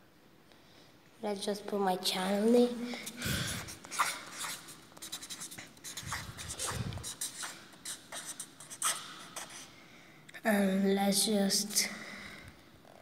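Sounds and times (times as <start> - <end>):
marker scratching on paper: 3.1 - 9.7.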